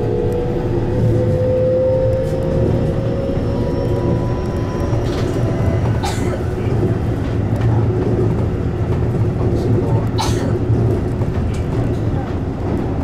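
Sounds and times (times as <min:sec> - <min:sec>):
train motor whine: 0:00.0 - 0:07.2
train wheels rumbling on rails: 0:00.0 - 0:13.0.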